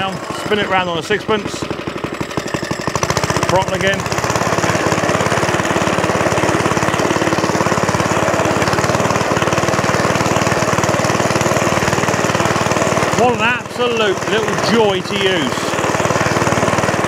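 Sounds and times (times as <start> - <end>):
lawn mower engine running: 0.0 - 17.0.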